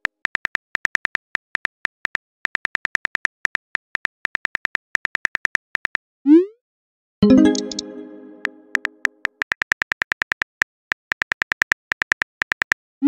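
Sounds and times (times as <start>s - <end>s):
keyboard tap clicks: 7.3s - 9.1s.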